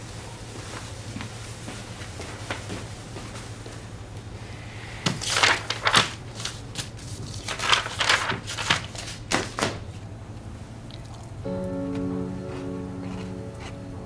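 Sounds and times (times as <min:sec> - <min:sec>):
crinkling and rustling: 0:05.2 - 0:09.6
low steady hum: 0:10.0 - 0:14.0.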